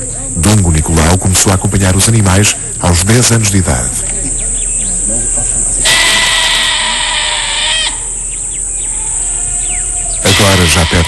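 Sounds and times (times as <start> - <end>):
goat bleating: 5.8 - 8.0.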